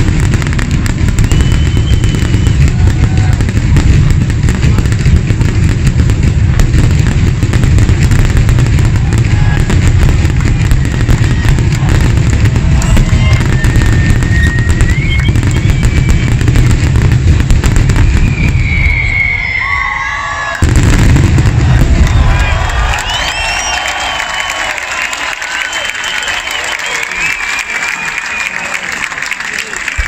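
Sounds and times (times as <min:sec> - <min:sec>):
fireworks bangs and crackles: 0:00.0 - 0:30.0
firework whistles: 0:00.9 - 0:03.4, 0:09.0 - 0:28.8.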